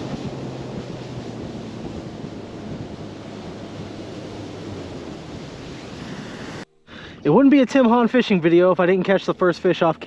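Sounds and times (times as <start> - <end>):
wind buffeting microphone: 0.0 - 6.6
outboard motor hum: 0.0 - 7.4
water rushing along hull: 0.0 - 10.0.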